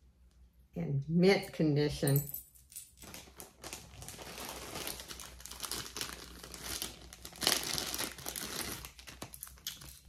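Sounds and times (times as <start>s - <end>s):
packaging crinkling: 2.9s - 10.0s.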